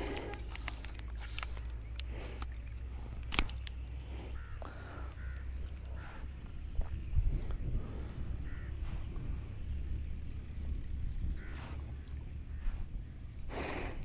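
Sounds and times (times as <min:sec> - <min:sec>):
low rumble: 0:00.0 - 0:14.0
short bird calls: 0:04.0 - 0:06.3, 0:08.4 - 0:09.4.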